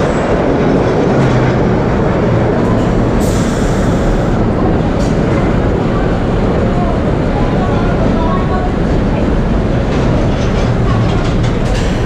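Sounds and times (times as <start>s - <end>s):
subway train rumbling: 0.0s - 12.0s
hiss of air: 3.2s - 4.4s.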